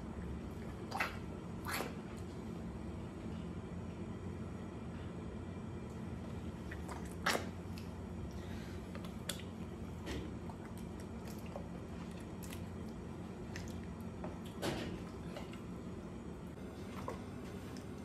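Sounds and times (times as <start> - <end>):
steady low hum: 0.0 - 18.0
sharp wet smacks: 6.7 - 7.9, 9.0 - 9.6.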